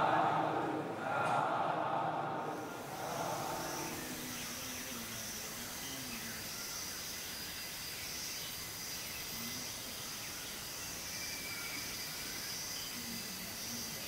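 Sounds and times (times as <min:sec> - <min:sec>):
steady hiss: 0:00.0 - 0:14.0
insect chorus buzzing: 0:02.4 - 0:14.0.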